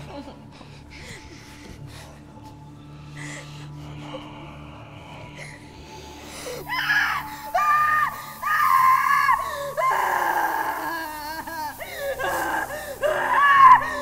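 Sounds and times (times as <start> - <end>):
woman screaming: 6.7 - 14.0.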